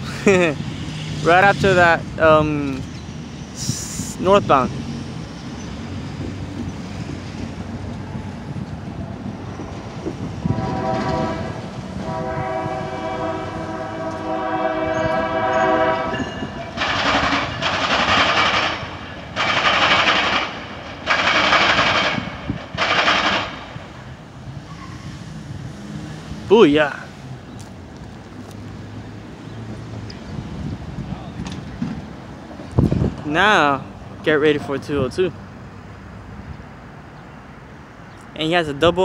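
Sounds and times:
train rumble: 0.0s - 36.9s
train horn chord: 10.4s - 16.6s
loud rushing bursts: 16.7s - 24.2s.

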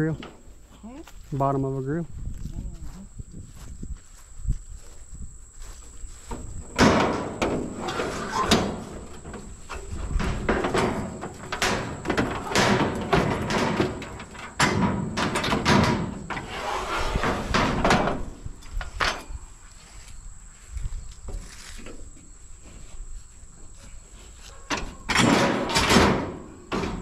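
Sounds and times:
metal knocks and rattles: 6.3s - 19.4s, 24.7s - 27.0s
scrap steel clanking and scraping: 6.3s - 19.6s, 24.3s - 27.0s.

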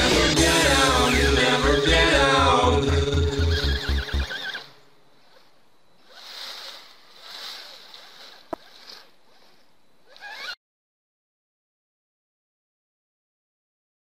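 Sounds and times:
background music: 0.0s - 4.7s
toy truck tyres rustling leaves: 3.6s - 10.6s.

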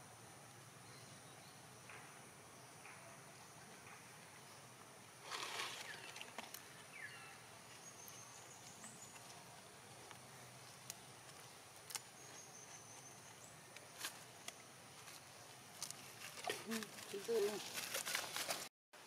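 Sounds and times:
brief rustle: 15.8s - 18.7s.

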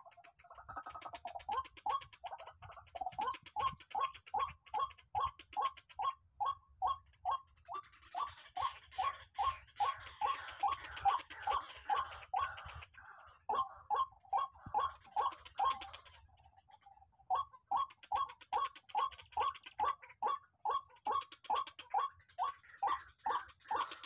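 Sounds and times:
waterhen croaking call: 0.0s - 24.0s.

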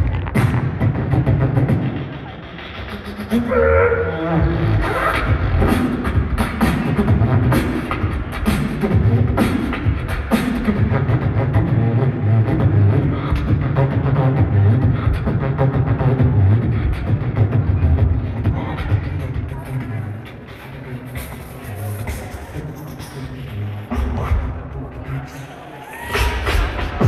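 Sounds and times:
beatboxing snare hits: 0.0s - 3.6s, 4.5s - 19.5s, 26.1s - 27.0s
beatboxed pulsing bass: 0.0s - 27.0s.

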